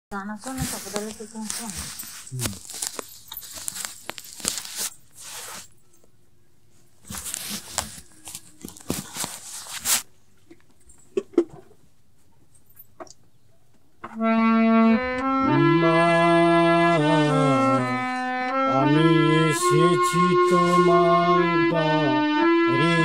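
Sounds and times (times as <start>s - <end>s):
phone handling rustling: 0.4s - 5.7s, 7.0s - 10.0s.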